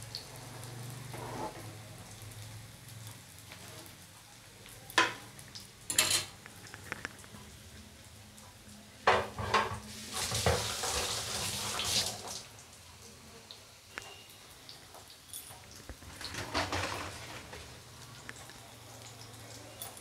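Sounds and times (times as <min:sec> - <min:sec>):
food sizzling in oil: 0:00.0 - 0:20.0
metal utensils clinking: 0:05.9 - 0:06.4, 0:19.7 - 0:20.0.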